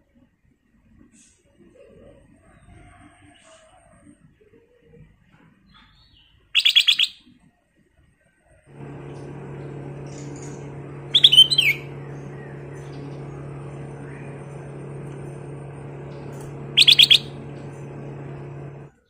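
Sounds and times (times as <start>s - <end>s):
low mechanical hum: 8.6s - 19.0s
bird singing bright notes: 16.8s - 17.4s.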